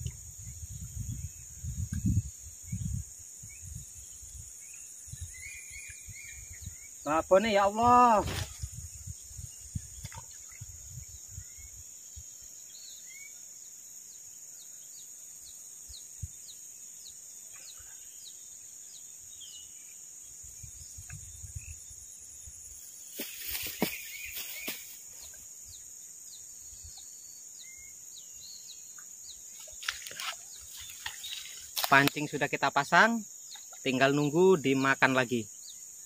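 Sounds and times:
high-pitched insect drone: 17.9 - 28.9
bird chirping: 23.0 - 32.5.

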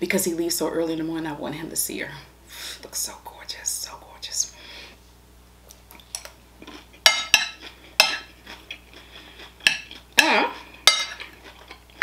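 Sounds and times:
cutlery clinking on ceramic plate: 7.0 - 8.3, 9.6 - 11.6.

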